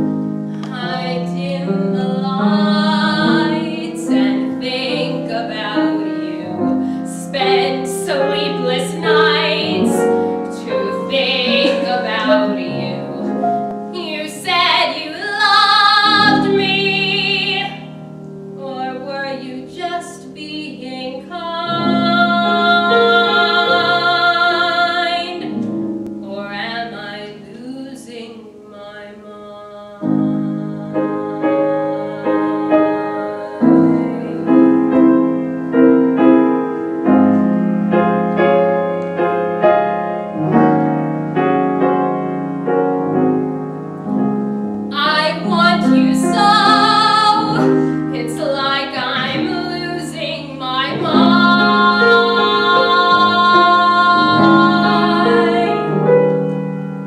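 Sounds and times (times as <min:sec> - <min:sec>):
piano accompaniment: 0:00.0 - 0:57.0
woman singing ballad: 0:00.5 - 0:18.0, 0:18.6 - 0:25.6, 0:26.2 - 0:35.1, 0:44.9 - 0:56.1.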